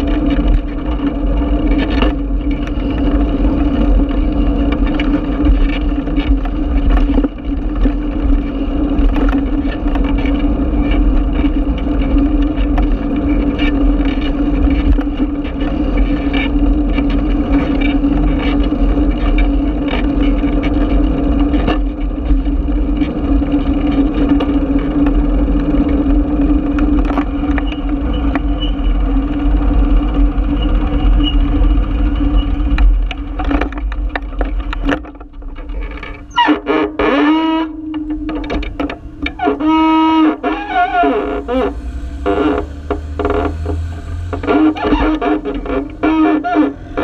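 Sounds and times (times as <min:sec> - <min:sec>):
wind and tyres rumbling on road: 0:00.0 - 0:47.0
steady hum: 0:24.2 - 0:47.0.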